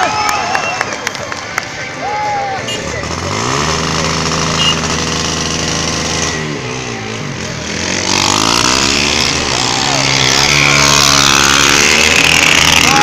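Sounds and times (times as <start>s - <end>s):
motorcycle engine revving: 2.7s - 13.0s.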